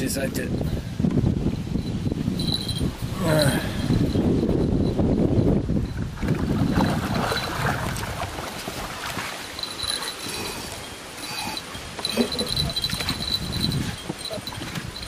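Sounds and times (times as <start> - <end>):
crickets chirping: 8.9 - 15.0.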